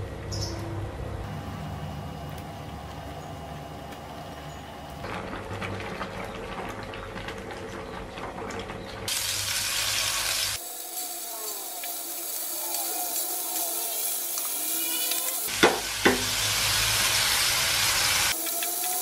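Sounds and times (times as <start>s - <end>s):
stew bubbling in saucepan: 2.7s - 10.8s
shrimp sizzling in butter: 9.1s - 19.0s.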